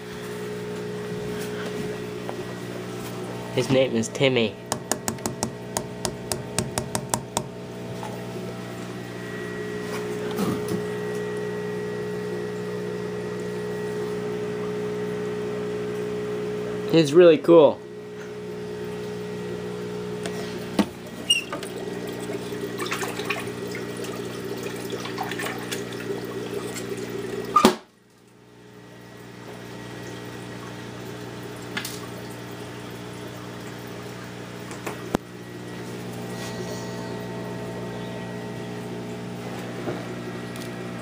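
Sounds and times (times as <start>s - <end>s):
aquarium filter motor hum: 0.0s - 41.0s
water splashing and trickling: 21.0s - 28.4s.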